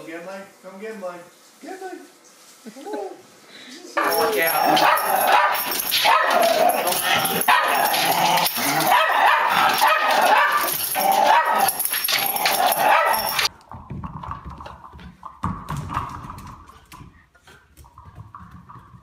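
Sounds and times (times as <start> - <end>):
small dogs barking: 4.0 - 13.5.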